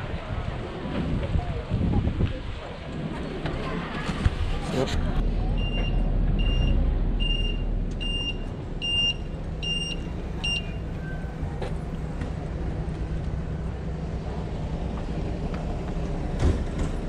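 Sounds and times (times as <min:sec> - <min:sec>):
vehicle engine rumbling: 0:00.0 - 0:17.0
electronic warning beeps: 0:05.6 - 0:11.3.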